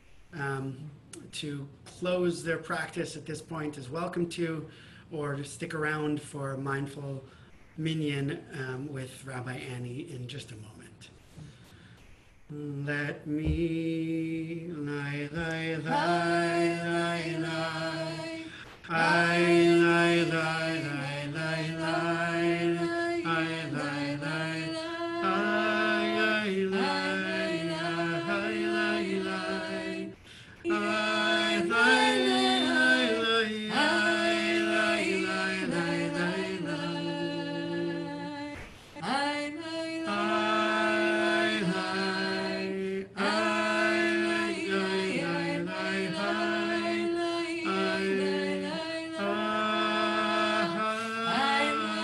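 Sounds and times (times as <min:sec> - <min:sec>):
person singing wordless melody: 0:12.5 - 0:52.0.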